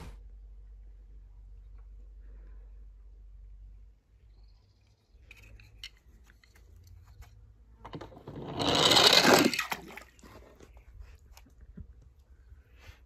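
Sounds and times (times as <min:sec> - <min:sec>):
toy car rattling down plastic slide: 0:07.9 - 0:09.8.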